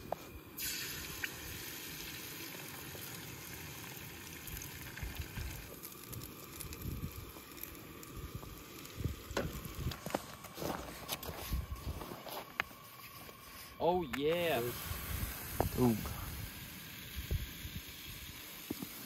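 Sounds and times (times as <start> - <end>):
eggs sizzling in a pan: 0.5 - 10.6, 14.3 - 19.0.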